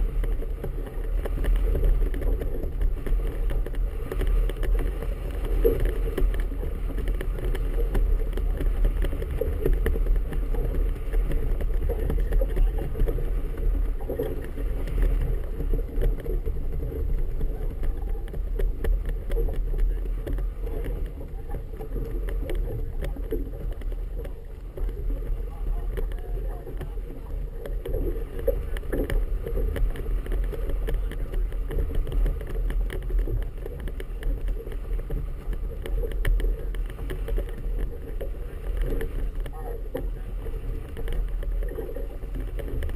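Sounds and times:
water slapping against boat hull: 0.0 - 42.9
wind rumble on microphone: 0.0 - 42.9.

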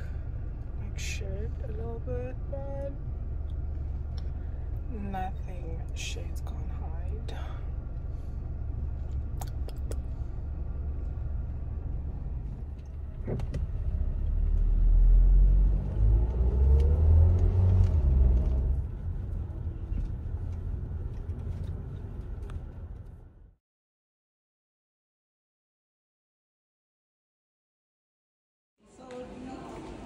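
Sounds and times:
car engine and road rumble: 0.0 - 23.6.

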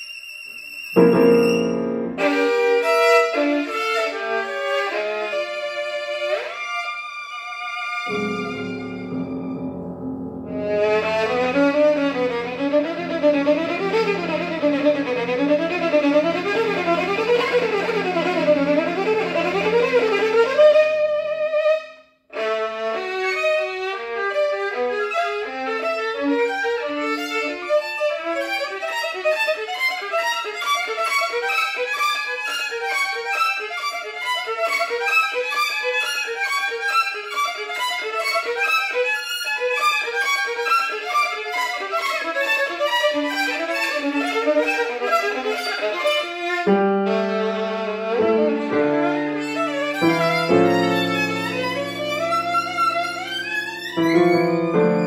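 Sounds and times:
violin playing fast scales: 0.7 - 55.0
sustained low piano notes: 8.1 - 20.5.

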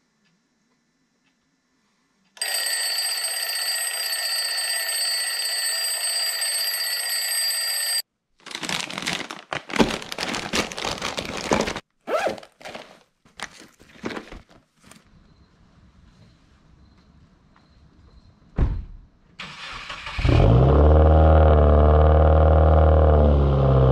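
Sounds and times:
shrill electronic alarm tone: 2.4 - 8.0.

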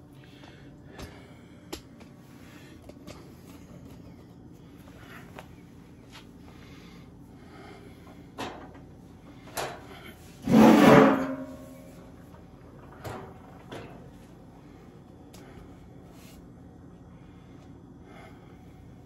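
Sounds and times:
metal scraping clatter with ring: 10.4 - 12.0.

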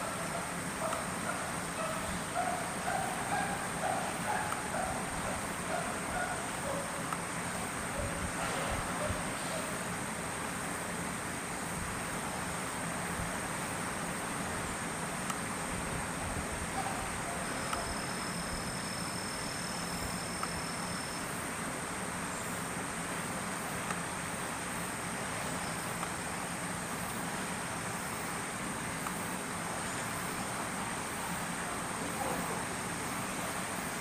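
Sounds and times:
even hiss: 0.0 - 34.0
faint ticks: 0.8 - 1.1, 17.5 - 18.4, 20.2 - 20.8
thin high whine: 16.7 - 21.7.

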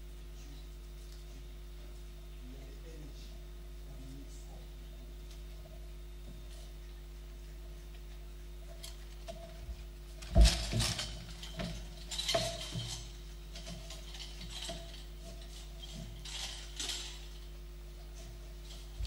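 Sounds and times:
faint steady hum: 0.0 - 19.0
knocks and rattling clicks: 10.2 - 17.4.

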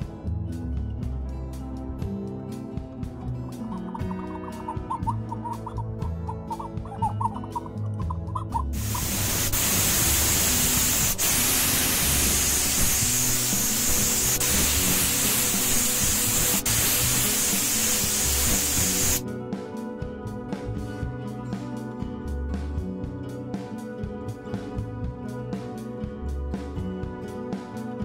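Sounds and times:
background music: 0.0 - 28.0
spray paint hissing: 8.4 - 19.2.

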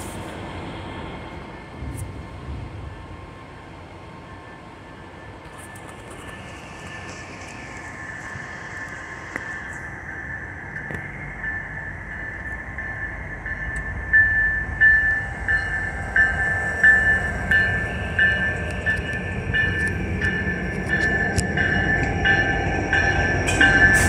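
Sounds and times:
train rumble: 0.0 - 24.0
bell ringing: 11.4 - 24.0.

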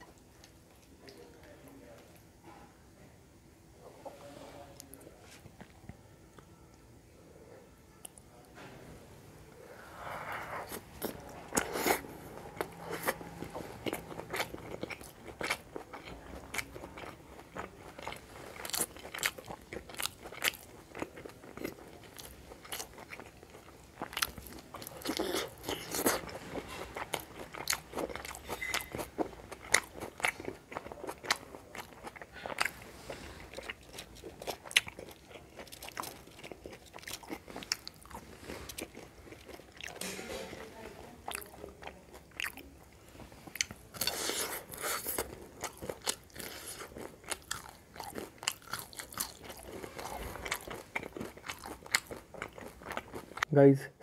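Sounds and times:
person crunching food: 10.7 - 40.0, 43.4 - 53.4.

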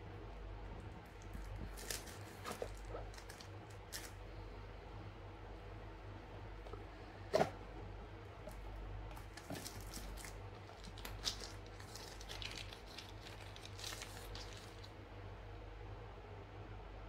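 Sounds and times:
plastic wrapping crinkling: 1.0 - 4.2, 8.5 - 15.0.

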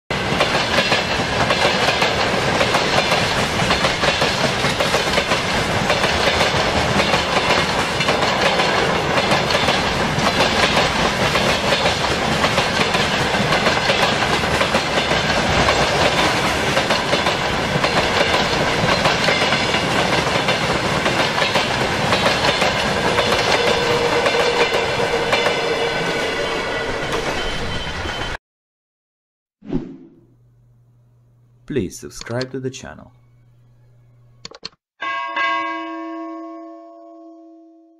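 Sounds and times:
clickety-clack over rail joints: 0.1 - 25.6
train wheels rumbling on rails: 0.1 - 28.4.

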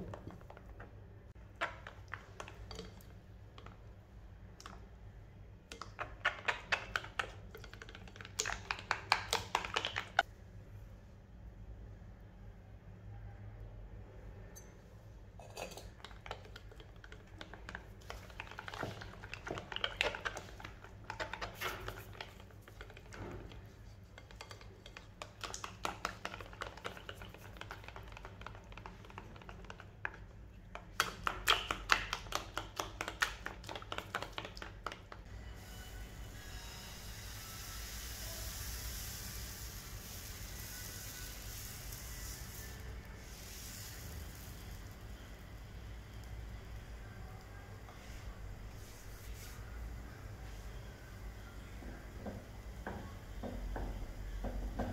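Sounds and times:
whisk beating batter in bowl: 6.0 - 10.2, 16.0 - 35.2
batter sizzling on hot pan: 35.6 - 46.5.

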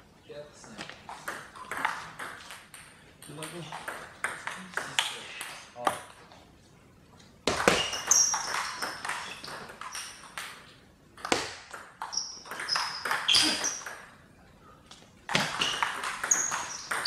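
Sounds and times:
shoes squeaking on floor: 7.6 - 10.2, 12.0 - 13.9, 15.3 - 17.0.

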